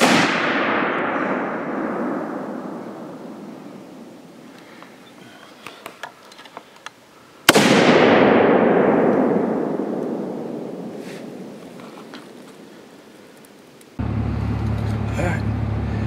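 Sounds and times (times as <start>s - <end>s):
rifle shot with long echo: 0.0s - 4.5s, 7.4s - 11.8s.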